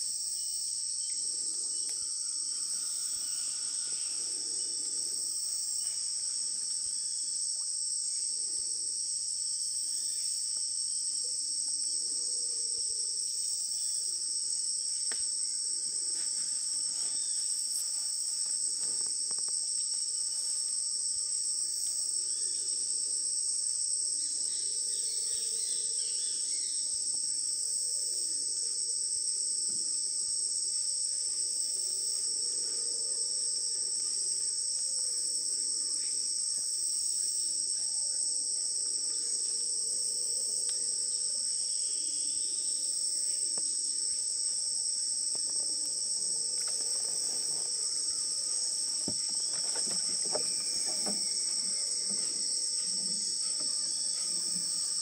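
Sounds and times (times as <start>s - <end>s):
insect chorus: 0.0s - 55.0s
faint knocks: 49.0s - 52.4s.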